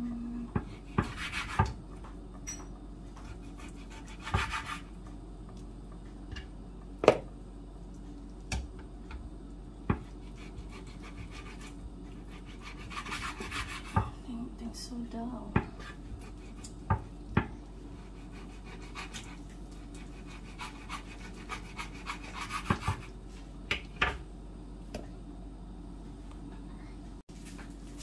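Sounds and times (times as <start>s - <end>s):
knife sawing through meat: 3.2s - 4.8s, 10.2s - 13.9s, 18.0s - 22.8s.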